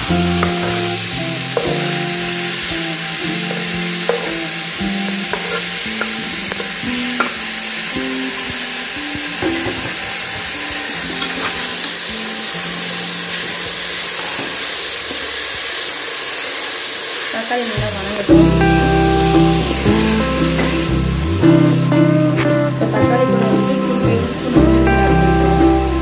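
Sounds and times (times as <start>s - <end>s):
soft background music: 0.0s - 14.8s, 17.8s - 26.0s
vegetables sizzling in hot oil: 0.0s - 26.0s
metal ladle stirring: 3.4s - 7.4s.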